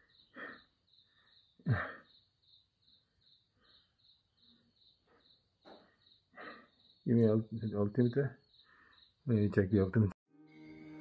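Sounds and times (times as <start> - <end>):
insect chirping: 0.0 - 9.6
man sighing: 1.6 - 2.1.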